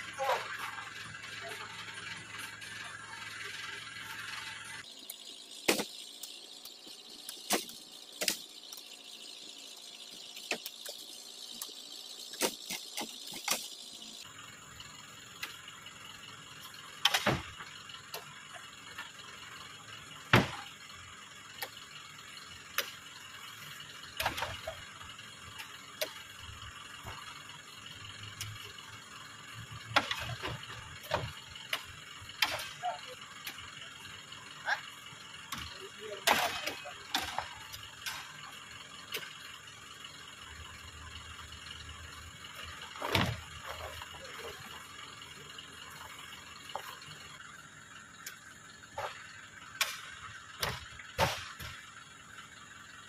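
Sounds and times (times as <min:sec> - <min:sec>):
metal spike knocking fruit bunches: 0:50.6 - 0:51.7.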